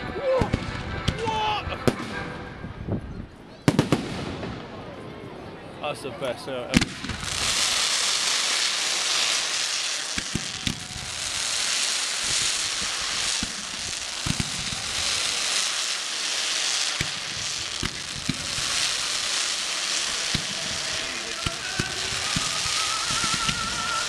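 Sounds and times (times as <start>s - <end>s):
fireworks bangs: 0.4s - 2.4s, 3.6s - 5.1s, 6.7s - 24.0s
fireworks hissing: 6.3s - 24.0s.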